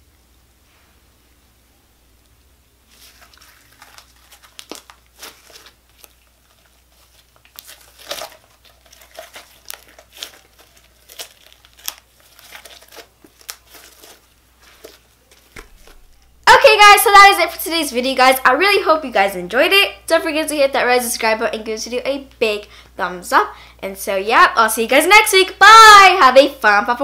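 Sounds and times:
slime crackling and popping: 2.9 - 16.3.

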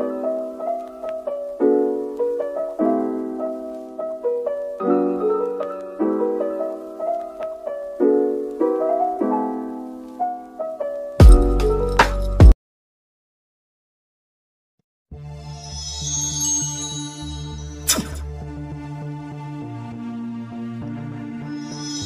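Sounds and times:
slow piano chords: 0.0 - 12.4.

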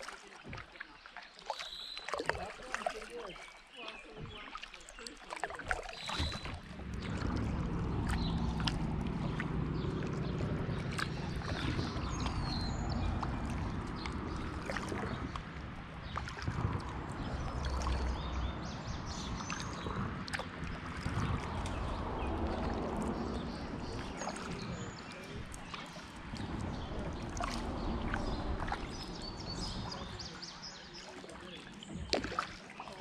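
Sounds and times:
paddle splashes and drips: 0.0 - 33.0
steady low rumble: 6.3 - 31.0.

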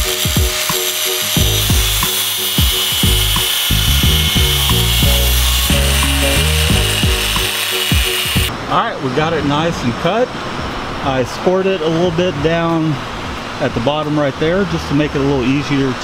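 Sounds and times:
angle grinder cutting metal: 0.0 - 8.5
background music with beat: 0.0 - 8.5.

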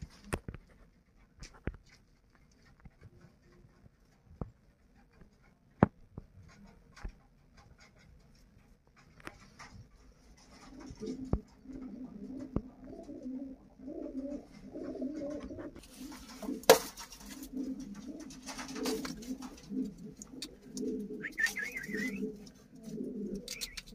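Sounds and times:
pigeons cooing: 9.6 - 23.9
rustle with sharp knock: 15.8 - 19.7.

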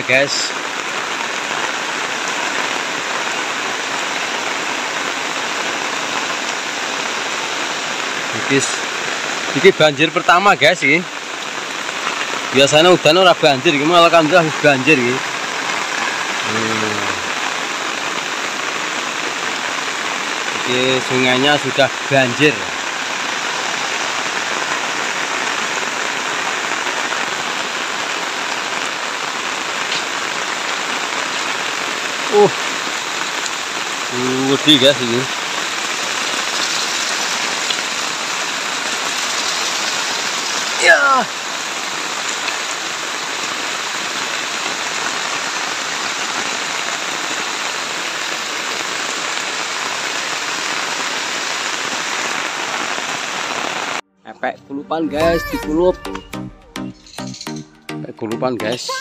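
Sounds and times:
heavy rain on a road: 0.0 - 54.0
water gushing from drain pipe: 30.5 - 44.5.

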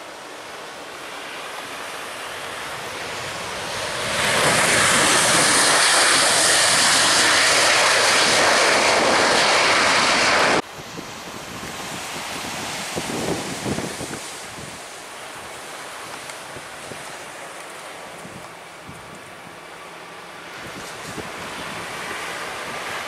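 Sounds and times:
jet engines roaring: 0.0 - 23.0.

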